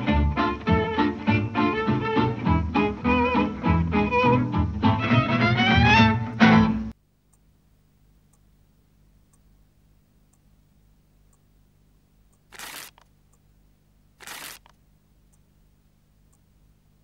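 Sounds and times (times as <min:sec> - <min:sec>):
swing music with fiddle: 0:00.0 - 0:06.9
faint ticking: 0:07.0 - 0:17.0.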